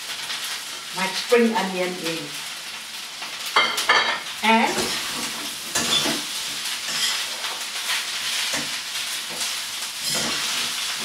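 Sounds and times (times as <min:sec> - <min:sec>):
rice sizzling in a wok: 0:00.0 - 0:11.0
metal spatula scraping wok: 0:04.5 - 0:11.0.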